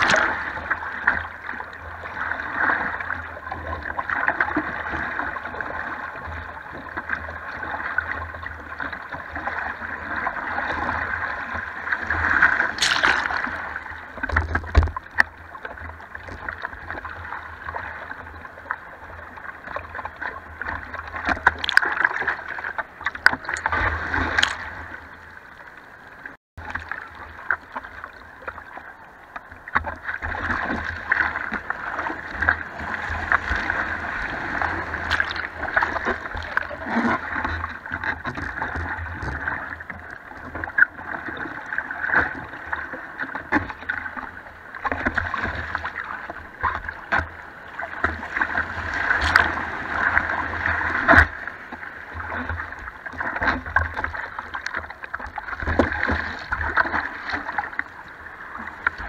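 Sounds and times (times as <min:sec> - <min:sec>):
water splashing against surfboard: 0:00.0 - 0:18.9, 0:19.6 - 0:25.2, 0:26.6 - 0:59.0
white water rushing: 0:12.1 - 0:13.8.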